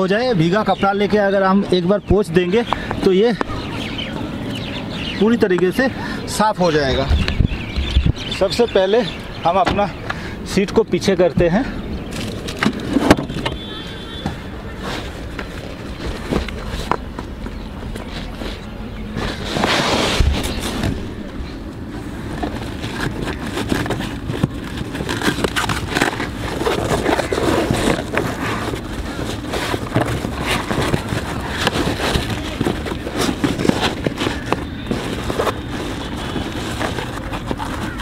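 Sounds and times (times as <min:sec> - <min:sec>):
car mat rustling and rubbing: 0:12.1 - 0:38.0.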